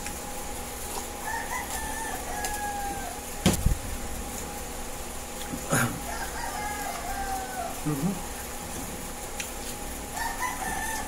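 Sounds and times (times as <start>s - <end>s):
rooster crowing: 1.2s - 3.4s, 5.7s - 8.0s, 10.1s - 11.0s.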